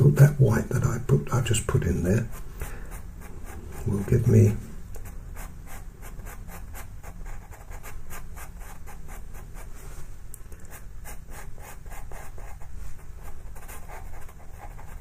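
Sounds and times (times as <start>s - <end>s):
pencil scratching on paper: 2.0s - 9.7s, 10.7s - 15.0s.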